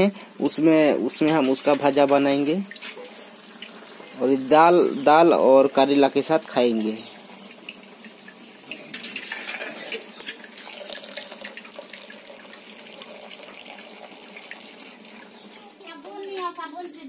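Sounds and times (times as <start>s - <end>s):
water splashing and dripping: 1.2s - 4.1s, 8.7s - 15.4s.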